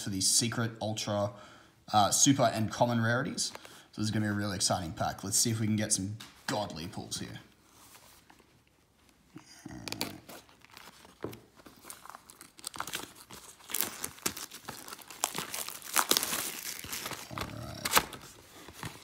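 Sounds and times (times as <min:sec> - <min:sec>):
plastic shrink-wrap crinkling: 0:10.2 - 0:19.0.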